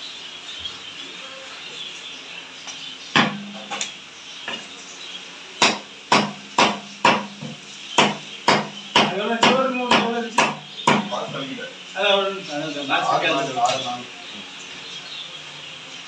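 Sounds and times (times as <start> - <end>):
knife chopping into wooden block: 5.6 - 11.1.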